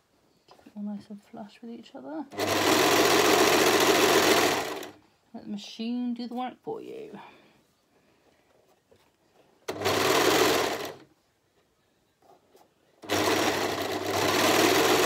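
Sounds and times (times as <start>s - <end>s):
serger stitching fabric: 2.3s - 5.0s, 9.7s - 11.1s, 13.0s - 15.0s.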